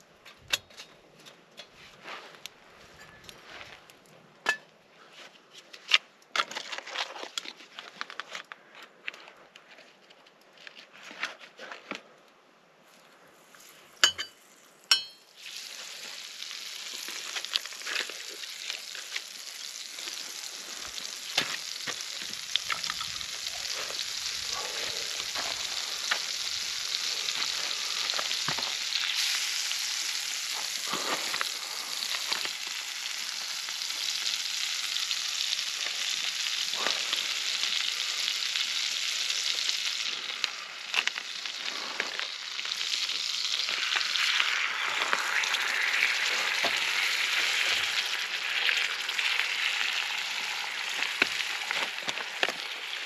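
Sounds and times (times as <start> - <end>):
food sizzling in a pan: 14.9 - 53.0.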